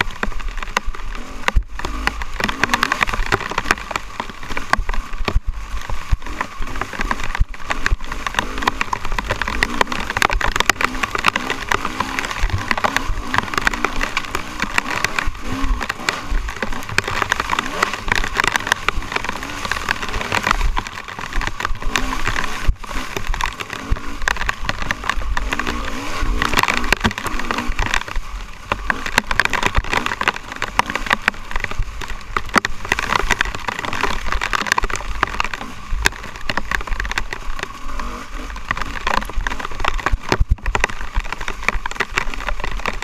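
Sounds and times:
sharp clicks and crackles: 0:00.0 - 0:43.0
dirt bike engine revving: 0:01.1 - 0:05.2, 0:06.2 - 0:27.9, 0:37.8 - 0:38.6.

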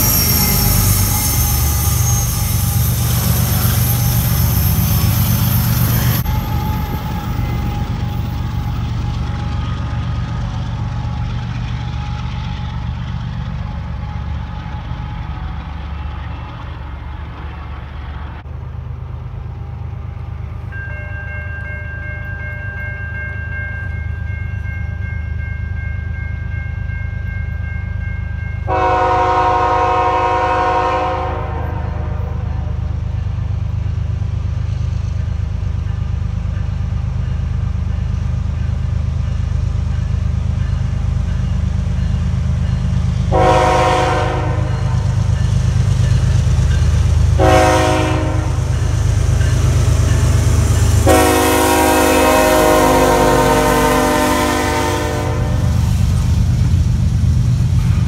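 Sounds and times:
crossing bell ringing: 0:00.0 - 0:15.6, 0:20.0 - 0:33.5, 0:35.2 - 0:55.9
diesel locomotive rumble: 0:00.0 - 0:58.0
train rumble: 0:00.0 - 0:58.0
train horn blast: 0:28.7 - 0:32.9, 0:43.3 - 0:45.2, 0:47.4 - 0:48.8, 0:51.0 - 0:55.8.

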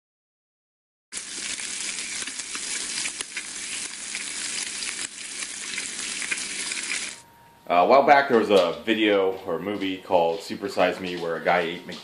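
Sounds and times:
crackling sizzle with small pops: 0:01.2 - 0:07.2.

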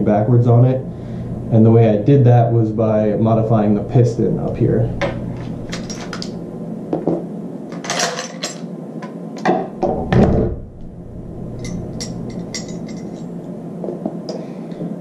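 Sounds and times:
steel parts clacking: 0:05.6 - 0:06.4, 0:07.7 - 0:08.7, 0:11.6 - 0:13.5.

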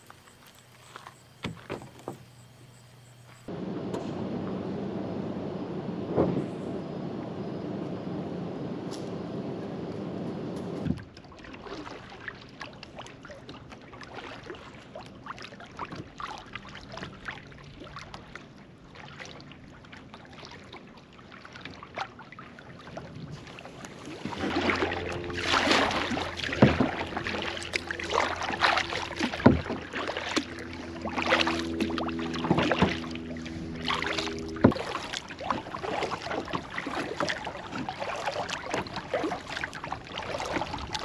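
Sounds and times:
water lapping at hull: 0:00.0 - 0:03.5, 0:04.5 - 0:41.0
paddle splashing: 0:00.0 - 0:04.6, 0:08.9 - 0:41.0
low steady hum: 0:23.4 - 0:41.0.

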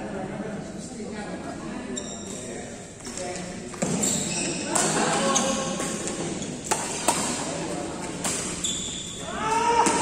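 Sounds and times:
rackets hitting shuttlecock: 0:03.8 - 0:08.9.

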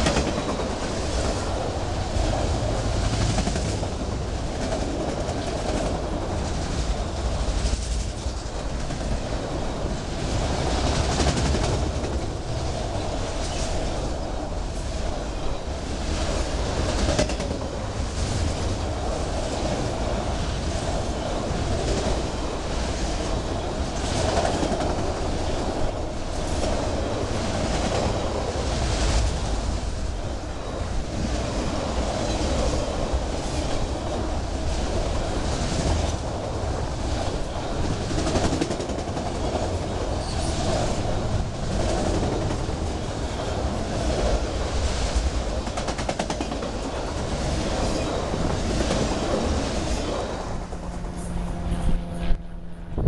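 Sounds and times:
freight cars rolling on rails: 0:00.0 - 0:53.0.

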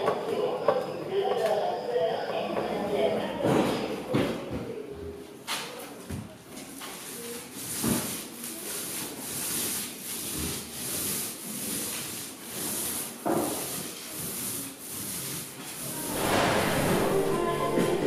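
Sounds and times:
paint roller swishing on wall: 0:06.6 - 0:18.0.

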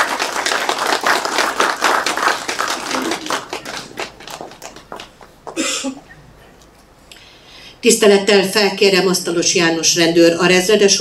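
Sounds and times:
crowd applauding: 0:00.0 - 0:05.7.

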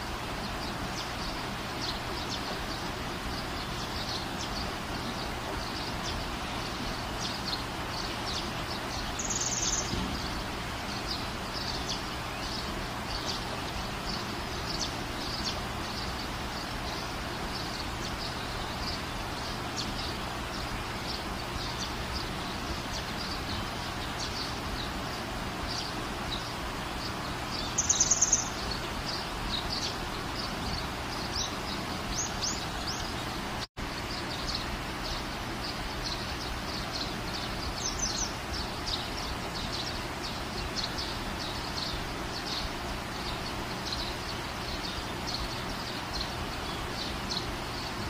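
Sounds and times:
small birds chirping: 0:00.0 - 0:48.0
steady background hiss: 0:00.0 - 0:48.0
bird rapid trill: 0:25.7 - 0:30.5.

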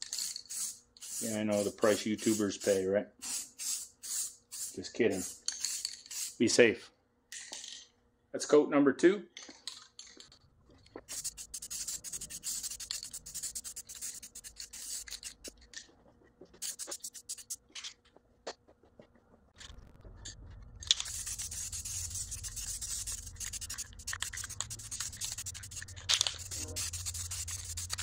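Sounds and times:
aerosol spray can hissing: 0:11.1 - 0:15.6, 0:16.6 - 0:17.6, 0:21.0 - 0:28.0
low hum: 0:18.8 - 0:28.0.

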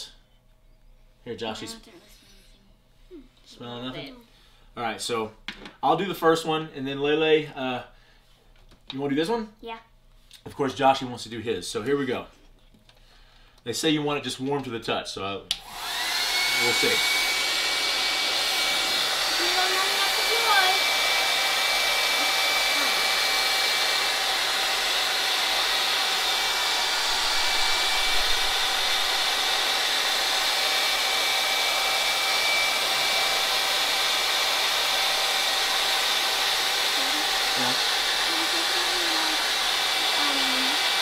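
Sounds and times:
hair dryer running: 0:15.5 - 0:41.0.

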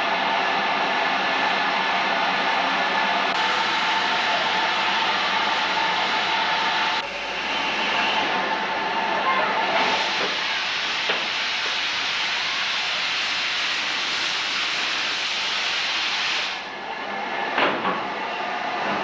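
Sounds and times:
steam locomotive venting steam: 0:03.4 - 0:16.8.

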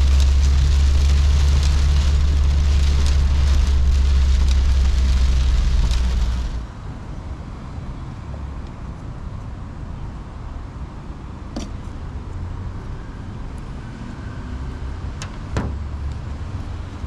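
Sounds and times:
heavy rain on car roof: 0:00.0 - 0:06.7
engine and road drone: 0:00.0 - 0:17.0.

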